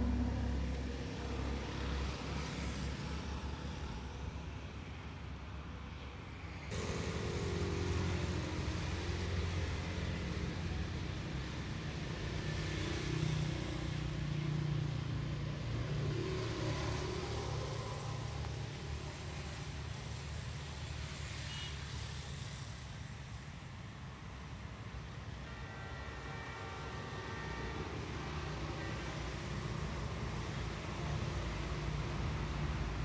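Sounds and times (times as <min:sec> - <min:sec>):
vehicles passing: 0:00.0 - 0:33.0
low engine hum: 0:06.7 - 0:11.2.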